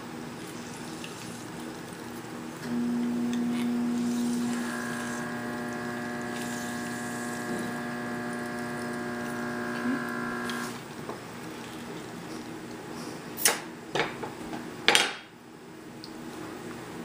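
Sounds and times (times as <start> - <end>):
appliance electrical hum: 0.0 - 17.0.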